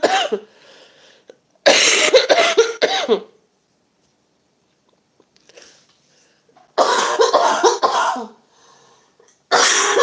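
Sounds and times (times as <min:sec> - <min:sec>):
woman coughing: 0:00.0 - 0:00.5, 0:01.6 - 0:03.4, 0:06.8 - 0:08.4, 0:09.5 - 0:10.0.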